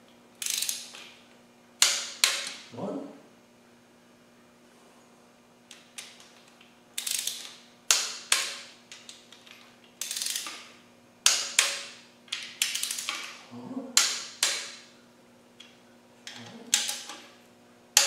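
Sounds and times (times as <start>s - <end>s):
rapid ratchet clicking: 0.4s - 1.1s, 7.0s - 13.4s
torque wrench clicks: 0.4s - 1.1s, 5.7s - 13.3s.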